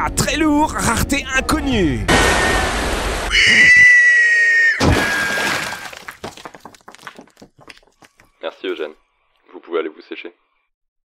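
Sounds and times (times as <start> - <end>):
cartoon high shriek: 3.3 - 5.5
wall breaking crash: 4.8 - 7.6
falling rubble clicks: 4.9 - 8.3.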